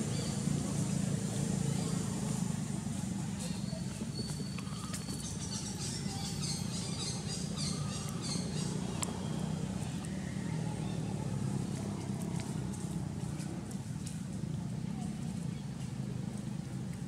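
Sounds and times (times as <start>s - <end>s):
faint clicks: 8.9s - 9.2s.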